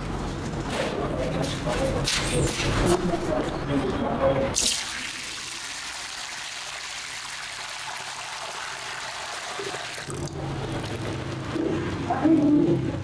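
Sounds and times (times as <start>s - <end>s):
liquid pouring into metal bowl: 4.6s - 11.2s.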